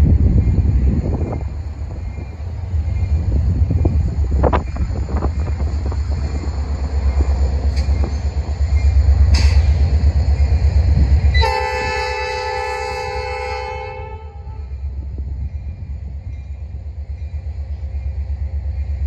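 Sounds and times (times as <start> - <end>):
locomotive air horn: 11.3 - 14.8.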